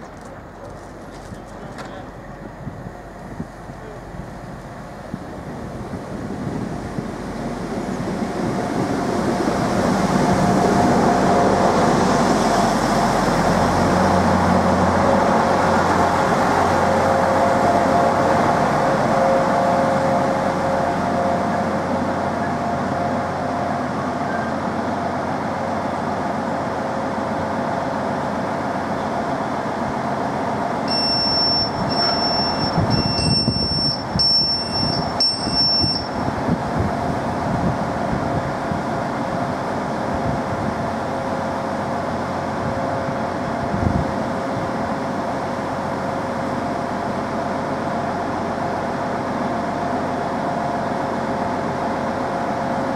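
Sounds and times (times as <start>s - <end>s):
diesel train engines humming: 0.0s - 52.9s
train rolling rumble: 0.0s - 52.9s
short high door warning beeps: 30.9s - 36.2s.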